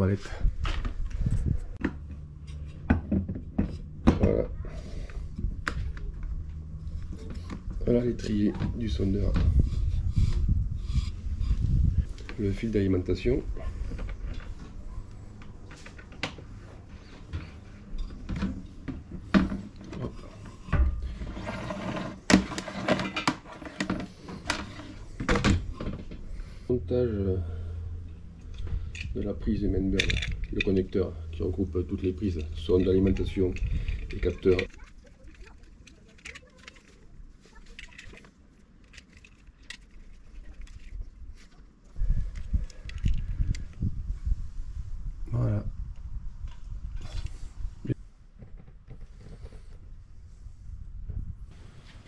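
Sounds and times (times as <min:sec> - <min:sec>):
cable connector clicks and rattles: 0:29.9 - 0:31.0, 0:32.3 - 0:41.5, 0:42.3 - 0:43.8.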